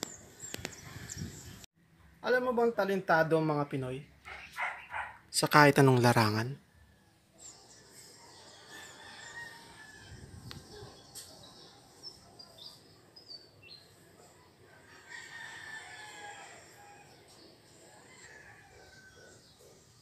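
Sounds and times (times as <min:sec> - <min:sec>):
faint rooster crowing: 0:08.0 - 0:11.1, 0:14.3 - 0:19.8.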